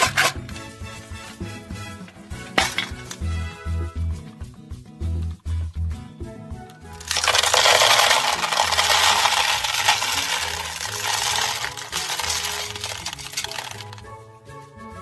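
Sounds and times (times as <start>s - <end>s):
quiet background music: 0.0s - 15.0s
candies clattering into plastic tub: 2.5s - 3.2s, 7.0s - 14.0s.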